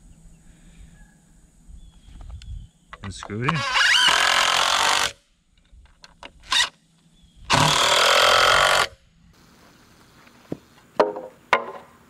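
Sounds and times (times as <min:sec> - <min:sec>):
cordless drill driving screws: 0:03.5 - 0:05.2, 0:07.5 - 0:08.9.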